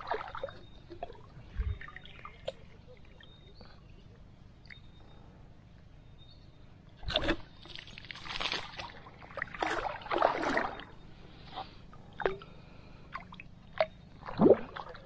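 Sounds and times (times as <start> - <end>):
water sloshing and splashing: 0.0 - 3.4, 7.0 - 15.0.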